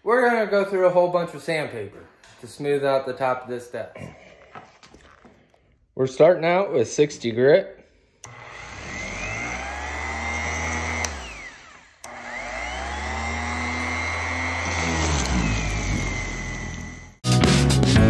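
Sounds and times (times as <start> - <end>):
orbital sander motor whine: 8.3 - 17.2.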